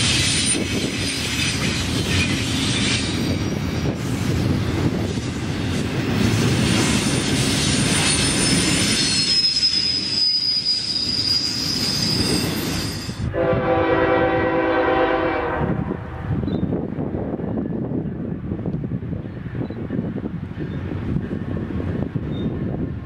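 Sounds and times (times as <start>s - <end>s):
train wheels squealing: 0.0s - 5.8s, 6.6s - 13.3s, 22.3s - 22.7s
low rumble of train: 0.0s - 23.0s
locomotive horn: 13.3s - 16.3s.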